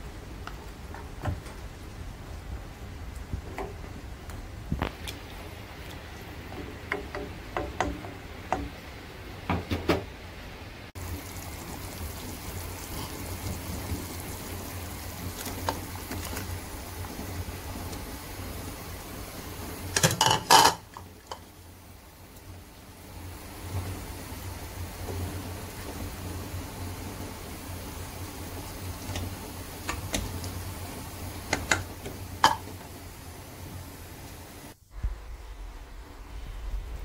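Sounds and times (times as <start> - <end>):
spoon knocking against pot: 6.6 - 8.8
liquid bubbling at a boil: 11.0 - 35.2.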